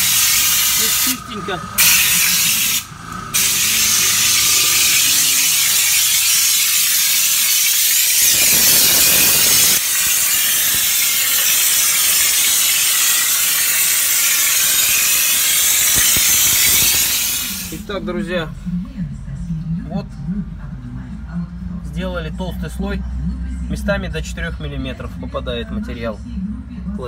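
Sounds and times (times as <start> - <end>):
spray gun hissing: 0.0 - 1.2, 1.8 - 17.8.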